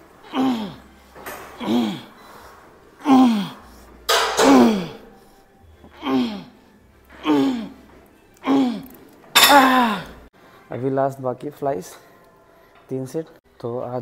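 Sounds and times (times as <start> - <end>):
man grunting with effort: 8.5 - 10.2.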